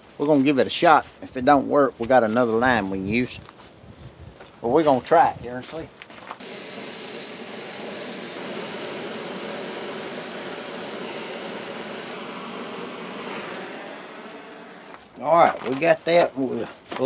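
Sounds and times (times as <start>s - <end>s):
torch flame hissing: 6.4s - 15.1s.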